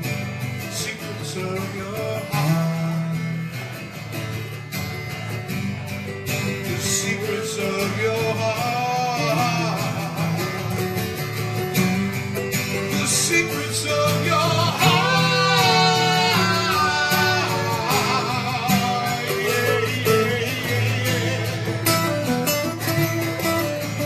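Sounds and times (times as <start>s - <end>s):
acoustic guitar: 0.0s - 24.0s
man singing: 0.6s - 3.2s, 6.5s - 11.0s, 12.7s - 22.9s.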